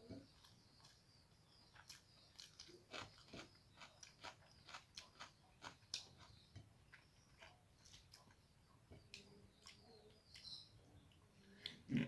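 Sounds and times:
faint wet eating clicks: 1.7 - 8.4, 9.0 - 11.9.

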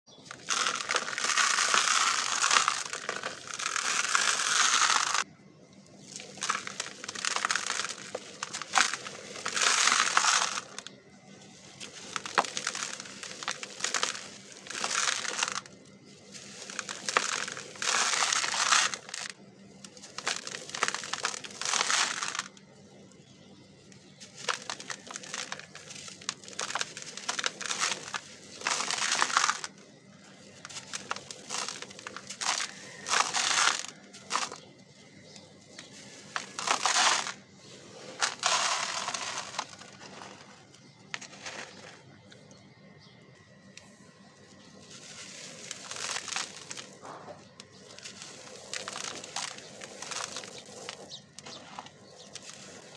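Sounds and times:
dry dirt crunching by hand: 0.1 - 5.3, 6.0 - 52.9
grainy rustling: 0.1 - 5.3, 6.0 - 42.7, 43.5 - 52.9.

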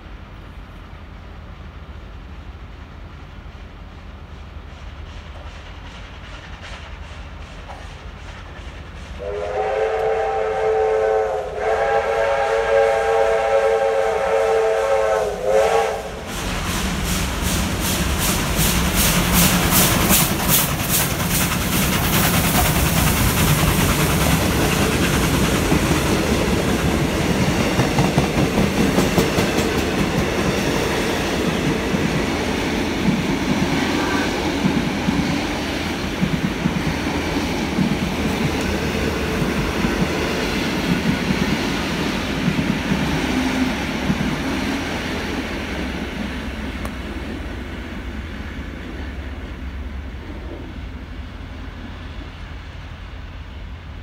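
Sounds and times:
rapid steam exhaust beats: 1.1 - 50.3
carriages clickety-clack over rails: 2.5 - 9.4, 16.2 - 47.6
steam locomotive chime whistle: 9.2 - 16.4.

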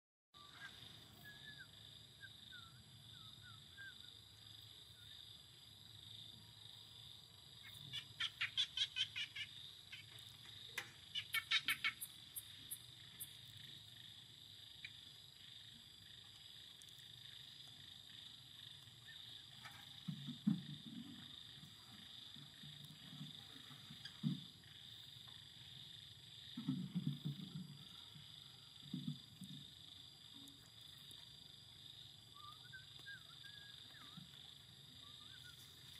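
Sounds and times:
faint chirps: 0.4 - 5.4, 32.0 - 35.9
high insect drone: 0.4 - 35.9
rapid pulsing calls: 7.6 - 13.5.

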